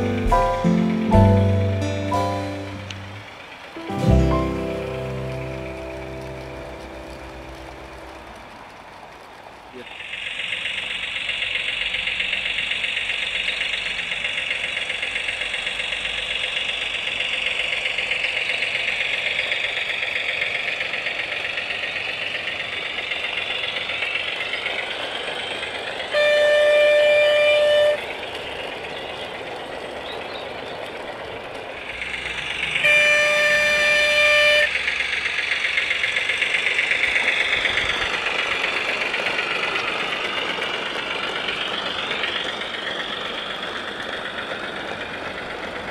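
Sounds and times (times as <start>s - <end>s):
model diesel engine sound: 0.0s - 45.9s
horn blasts: 26.1s - 28.3s, 32.6s - 34.9s.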